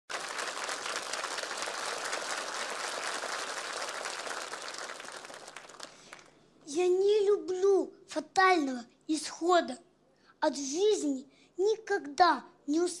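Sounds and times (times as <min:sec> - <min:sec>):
audience applauding: 0:00.1 - 0:06.3.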